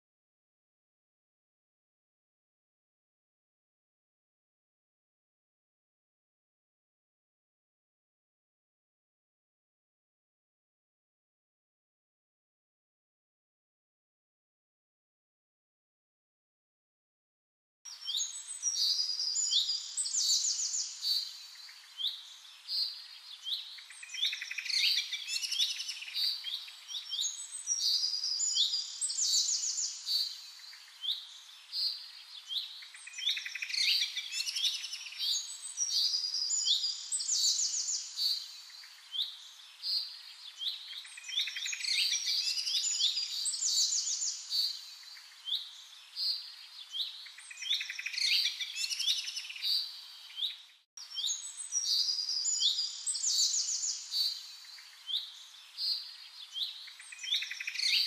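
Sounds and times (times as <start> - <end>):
birds chirping and singing: 17.9 - 58.0.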